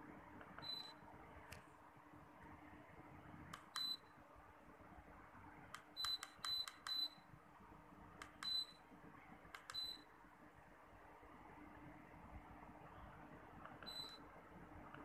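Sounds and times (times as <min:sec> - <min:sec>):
air conditioner short high beeps: 0:00.6 - 0:01.0, 0:03.7 - 0:04.1, 0:06.0 - 0:07.3, 0:08.4 - 0:08.8, 0:09.7 - 0:10.1, 0:13.8 - 0:14.3
remote control buttons clicking: 0:05.8 - 0:07.1, 0:08.2 - 0:08.6, 0:09.6 - 0:10.0.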